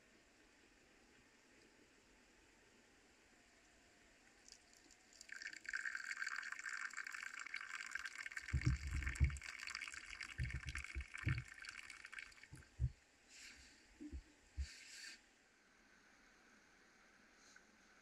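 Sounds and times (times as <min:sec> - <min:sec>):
water pouring: 0:04.5 - 0:12.9
low thuds: 0:08.6 - 0:09.4.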